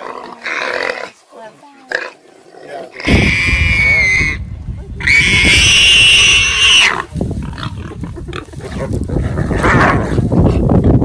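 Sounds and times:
warthog squealing: 3.0s - 4.4s, 5.0s - 10.1s
low rumble: 3.1s - 11.0s.

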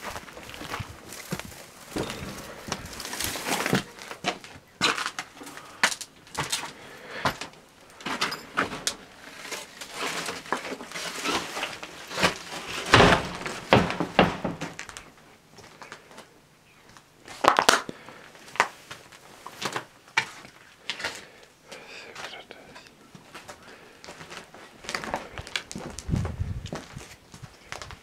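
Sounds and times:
crackles and knocks: 0.0s - 16.3s
footsteps crunching over debris: 0.0s - 21.3s, 23.1s - 28.0s.

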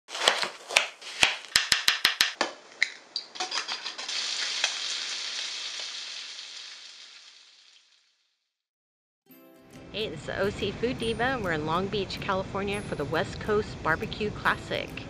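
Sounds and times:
bacon sizzling in a frying pan: 3.5s - 8.0s.

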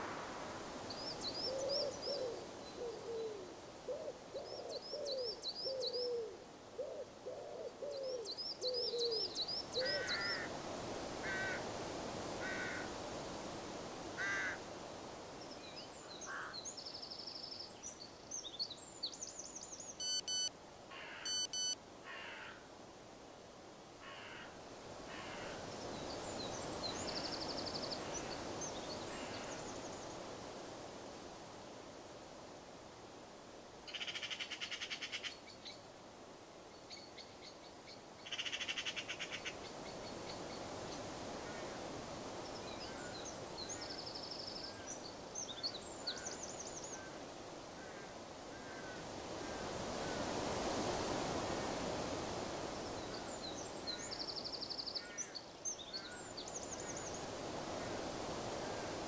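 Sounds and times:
low repeated bird calls: 19.2s - 21.8s
harsh mid-pitched bird calls: 20.0s - 21.8s.

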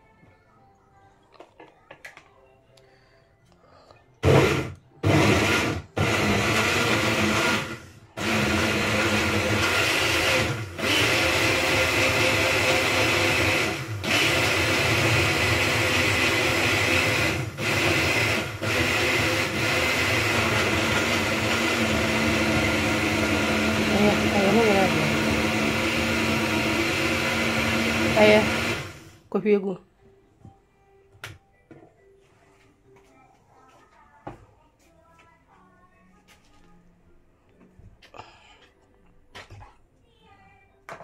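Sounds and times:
blender running: 4.2s - 29.2s.

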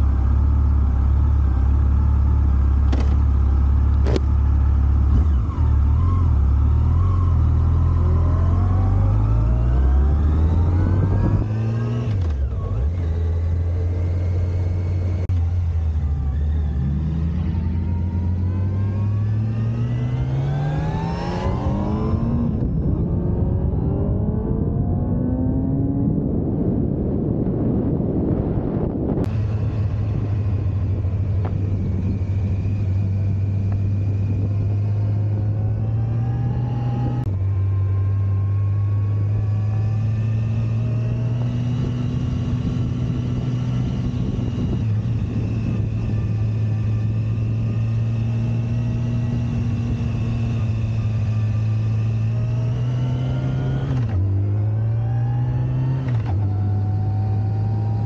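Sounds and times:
motorcycle engine running: 0.0s - 24.9s, 29.2s - 54.7s
wind rush: 18.6s - 37.4s, 40.8s - 53.0s.

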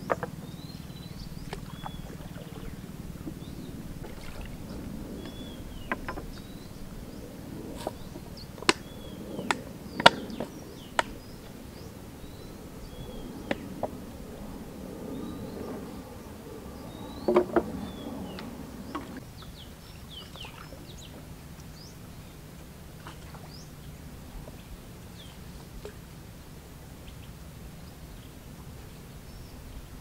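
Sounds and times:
paddle knocking against wooden hull: 0.0s - 0.4s, 1.4s - 6.6s, 17.2s - 17.8s.

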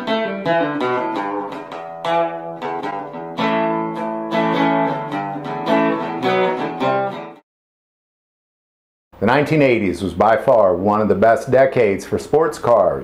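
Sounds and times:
plucked guitar notes: 0.0s - 7.4s.

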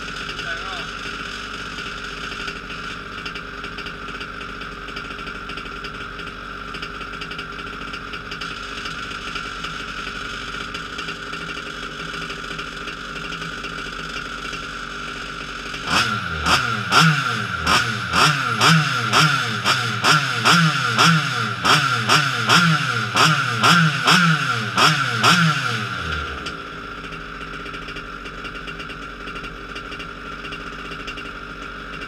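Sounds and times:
two-stroke engine idling: 0.0s - 32.0s.

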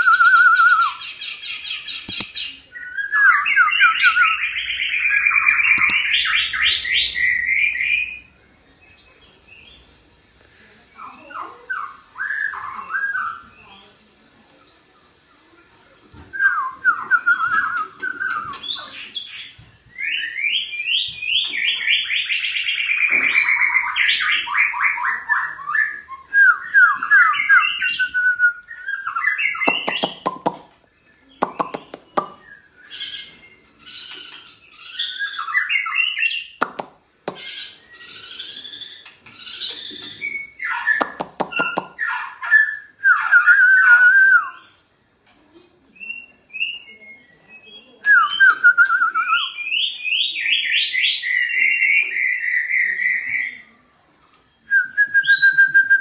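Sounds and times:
bird singing whistled phrases: 0.0s - 1.2s, 1.9s - 8.2s, 16.3s - 30.5s, 34.7s - 36.6s, 37.3s - 44.8s, 46.0s - 53.7s, 54.6s - 56.0s
bird clicking bursts: 29.7s - 30.7s.

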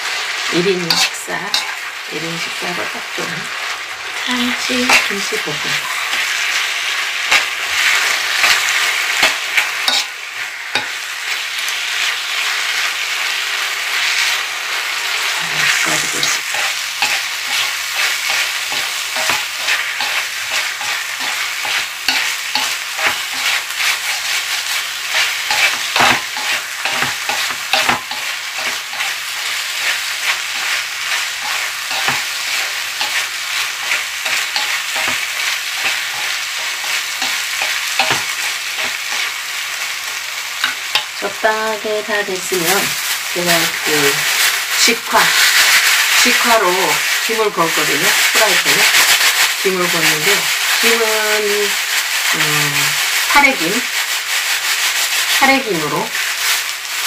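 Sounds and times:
rice sizzling in a frying pan: 0.0s - 57.0s
utensils scraping a pan: 0.7s - 2.8s, 7.2s - 11.0s, 15.2s - 39.3s, 40.6s - 41.3s.

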